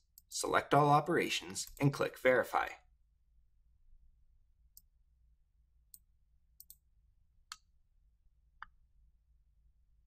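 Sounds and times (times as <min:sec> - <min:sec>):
computer mouse clicks: 0:05.9 - 0:06.8.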